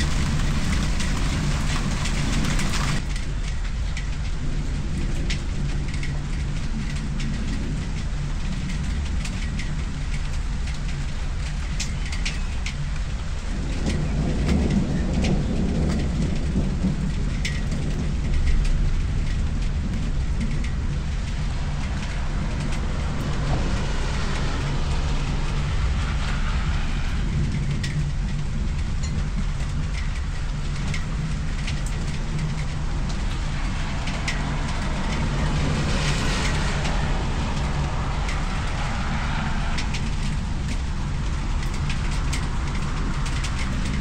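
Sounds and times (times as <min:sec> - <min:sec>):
raindrop ticks: 0:00.0 - 0:44.0
steady low rumble: 0:00.0 - 0:44.0
passing car hiss: 0:21.5 - 0:27.9, 0:33.5 - 0:41.0.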